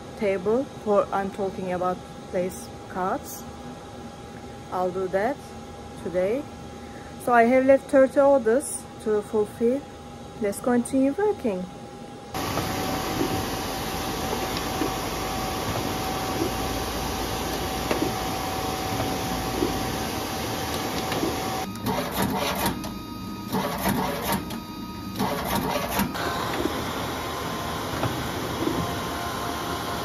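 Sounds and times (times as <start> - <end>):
printer running: 12.4 - 30.0
paper creasing machine clicking: 20.7 - 22.9, 23.5 - 24.6, 25.2 - 26.8.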